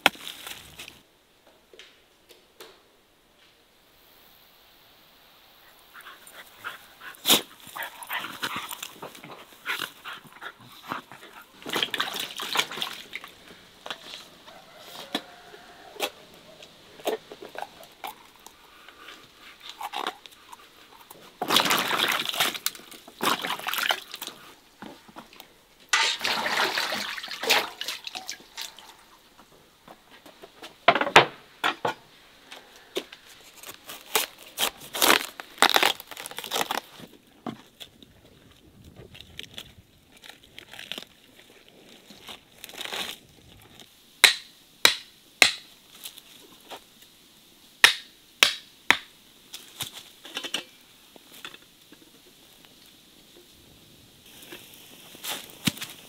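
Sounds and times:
wet squelching and tearing: 33.6s - 37.0s.

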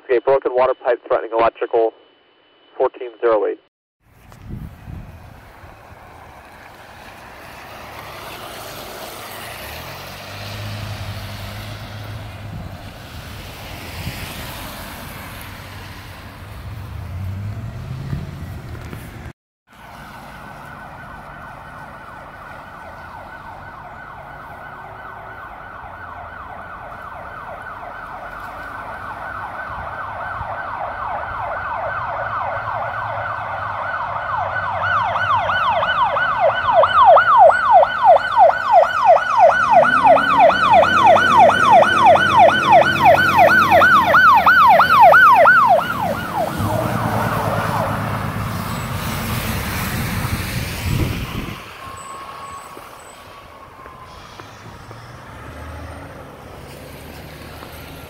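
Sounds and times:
truck engine passing: 4.8s - 58.0s
fire truck siren yelping: 19.8s - 57.9s.

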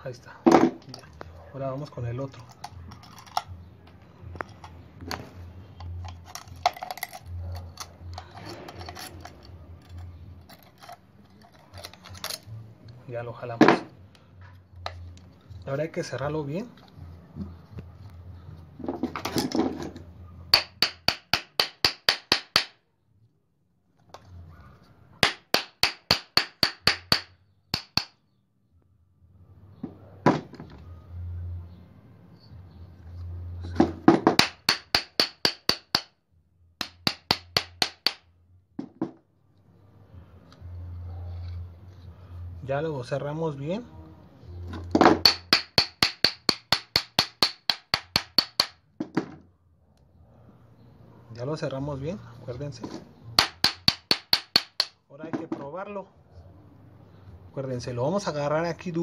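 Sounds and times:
hammer tapping metal: 25.2s - 28.1s, 34.4s - 36.1s, 36.8s - 38.2s, 45.2s - 48.8s, 53.4s - 55.0s.

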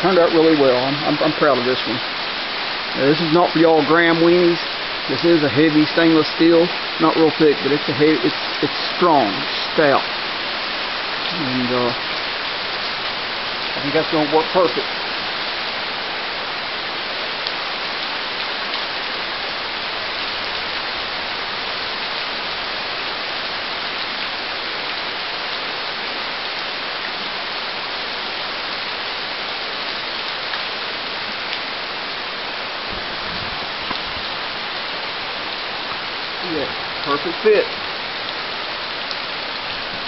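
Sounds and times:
steady rain falling: 0.0s - 40.0s.

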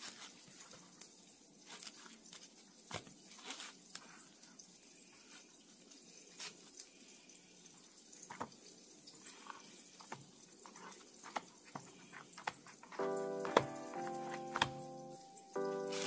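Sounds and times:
soft taps and wet drips: 7.6s - 14.9s.

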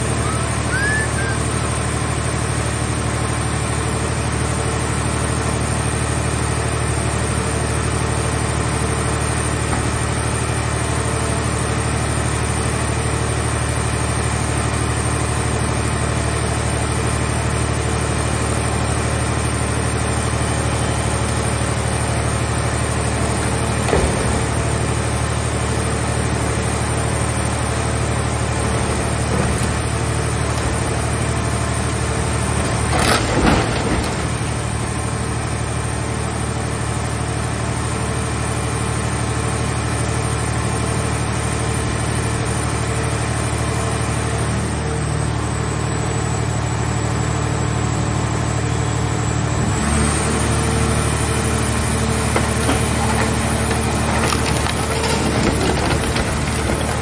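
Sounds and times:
baler engine running: 0.0s - 57.0s
sheet metal crunching: 52.3s - 57.0s.

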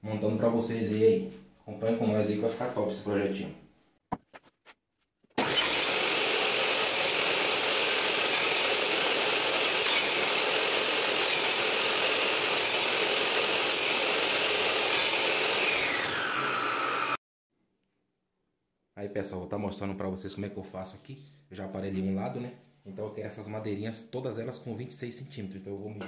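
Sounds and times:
table saw cutting wood: 5.4s - 17.2s.

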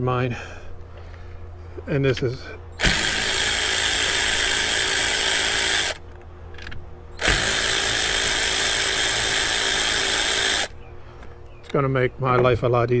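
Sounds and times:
electric ratchet running: 2.8s - 6.2s, 7.2s - 10.8s.

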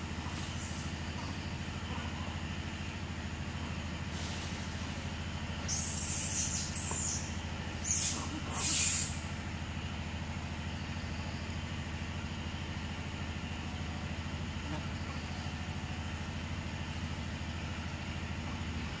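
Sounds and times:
low pulsing engine hum: 0.0s - 19.0s
short loud hiss: 7.9s - 9.2s.

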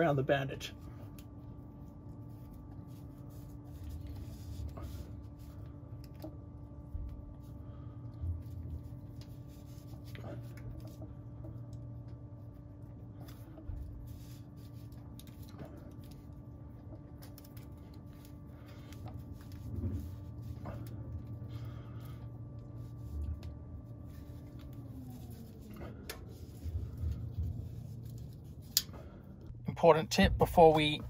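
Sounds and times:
steady low hum: 0.0s - 31.0s
wire winding rustle and clicks: 8.4s - 21.5s.

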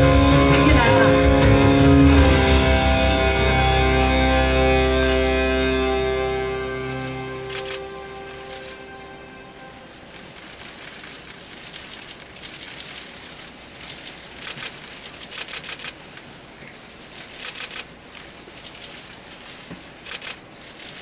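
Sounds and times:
music held notes: 0.0s - 10.3s
audience applauding: 0.0s - 11.0s.

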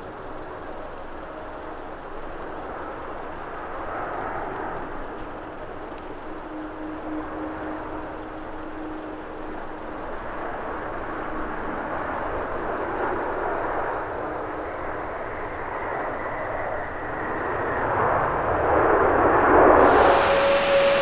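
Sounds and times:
jet engines rushing: 0.0s - 21.0s.

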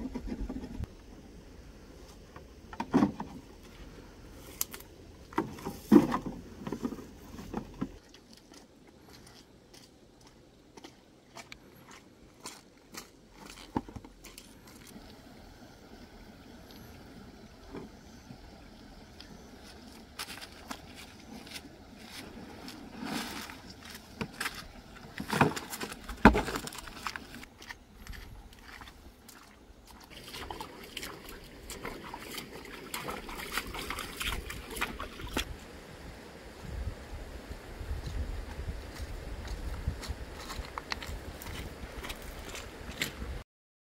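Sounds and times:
hose rustling and knocking: 5.3s - 8.0s, 20.1s - 27.5s
footsteps crunching on stones: 6.7s - 15.0s, 19.6s - 35.6s, 38.0s - 43.3s
stones knocking: 23.5s - 27.4s
water splashing from wading: 28.6s - 35.6s.

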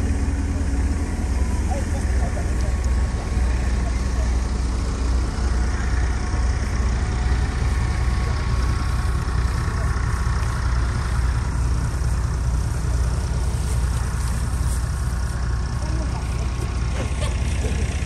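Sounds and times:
low engine rumble: 0.0s - 18.0s.

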